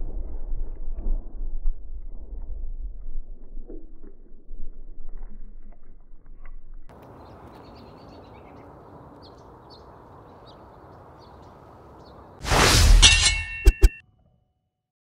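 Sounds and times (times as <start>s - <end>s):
small birds chirping: 6.9s - 12.4s.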